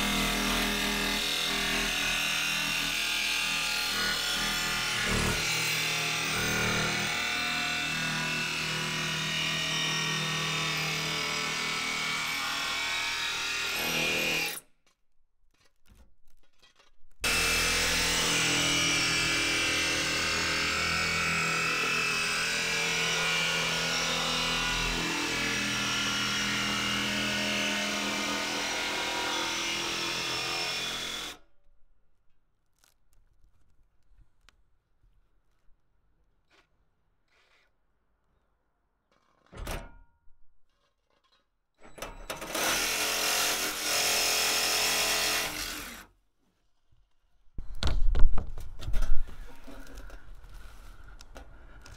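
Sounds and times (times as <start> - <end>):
jigsaw cutting metal: 0.0 - 31.5, 41.2 - 46.1.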